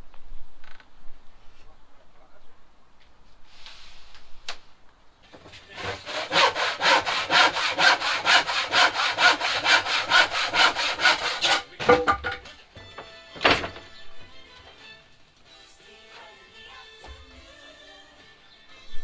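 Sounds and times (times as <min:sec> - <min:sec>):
handsaw cutting wood: 0:05.6 - 0:11.7.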